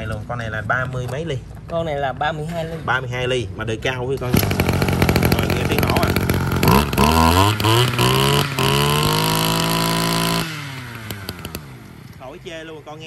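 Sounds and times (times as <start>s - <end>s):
brushcutter engine revving: 4.2s - 12.5s.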